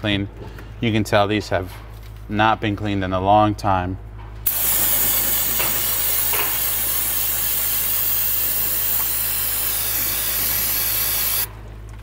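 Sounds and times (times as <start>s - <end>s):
aerosol can spraying: 4.5s - 11.5s.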